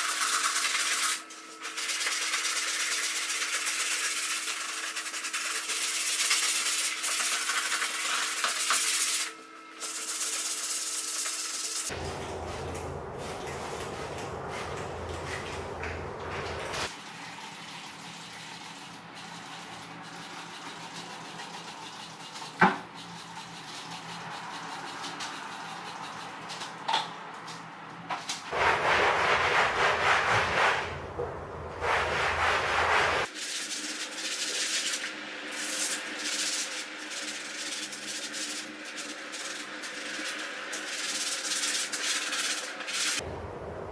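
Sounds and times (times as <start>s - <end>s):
sponge scrubbing fabric: 1.7s - 9.1s, 11.9s - 16.9s, 28.5s - 43.2s.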